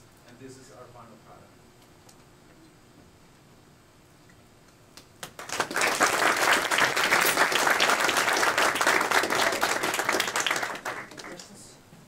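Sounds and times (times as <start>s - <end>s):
audience applause: 5.2s - 11.5s.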